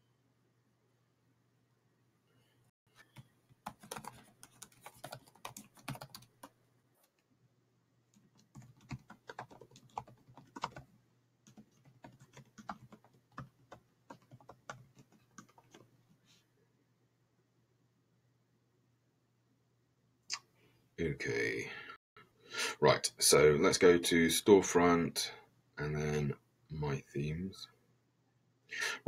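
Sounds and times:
faint computer keyboard typing: 3.0s - 7.2s, 8.1s - 10.9s, 11.5s - 15.9s.

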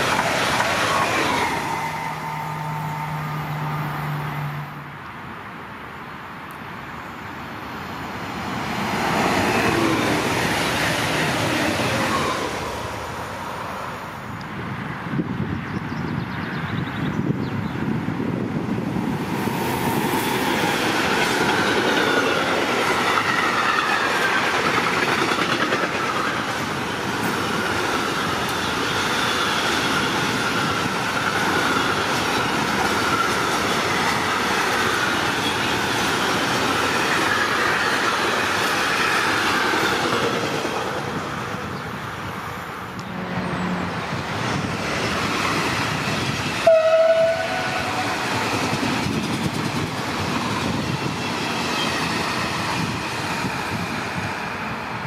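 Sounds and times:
train rumble and rail clatter: 0.0s - 55.0s
train horn toot: 1.5s - 4.8s, 46.6s - 48.3s.

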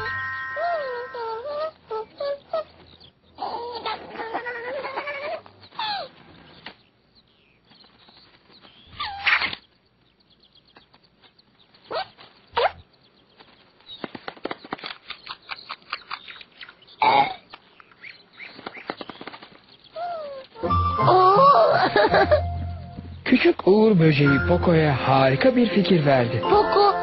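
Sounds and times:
cartoon character squeals and whines: 0.0s - 2.4s, 20.6s - 22.0s.

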